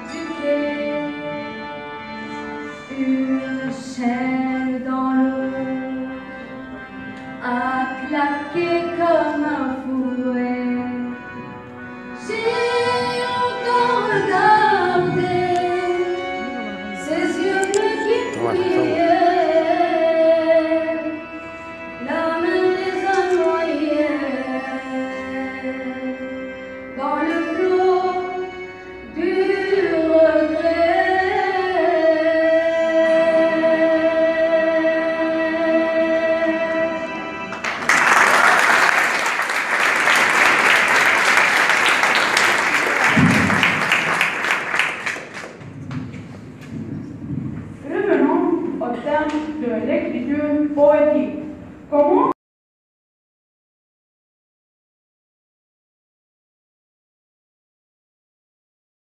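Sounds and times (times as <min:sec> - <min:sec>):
person singing into a microphone: 0:17.1 - 0:21.0
audience applause: 0:37.6 - 0:45.7.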